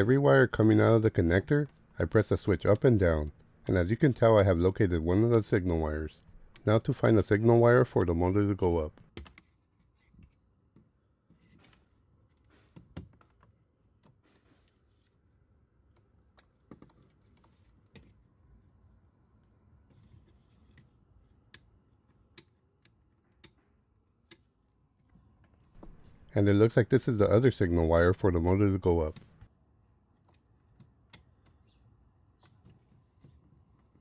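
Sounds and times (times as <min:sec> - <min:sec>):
probe working into connector: 0:06.2 - 0:07.3, 0:25.6 - 0:26.4.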